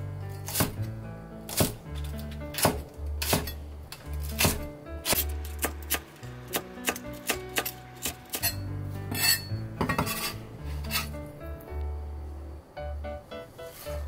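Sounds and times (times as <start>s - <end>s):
knife chopping on cutting board: 0.4s - 0.8s, 1.5s - 1.8s, 2.6s - 3.6s, 4.2s - 8.5s.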